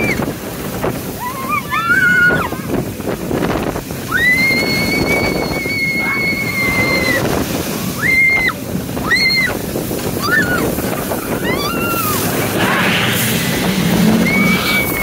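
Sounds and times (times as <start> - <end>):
wind rushing across microphone: 0.0 - 15.0
girl screaming: 1.2 - 2.6.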